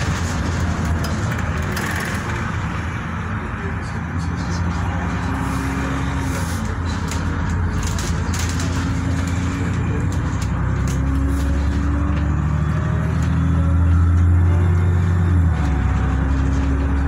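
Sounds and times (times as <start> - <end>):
bodywork rattles and clicks: 0.0 - 2.7, 6.6 - 12.4
bus engine and road rumble: 0.0 - 17.0.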